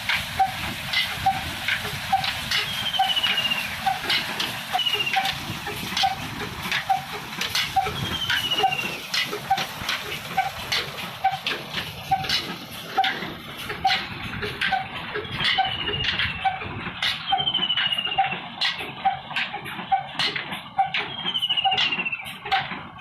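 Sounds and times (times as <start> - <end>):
slow diesel engine knocking: 0.0 - 23.0
water gushing and splashing: 0.0 - 23.0
short falling whistles: 21.1 - 22.2.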